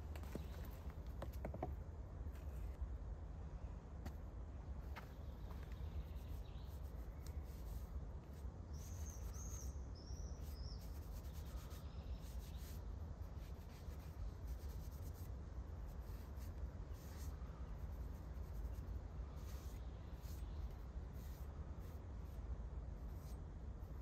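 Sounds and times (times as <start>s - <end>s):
bird chirping: 8.7s - 12.8s.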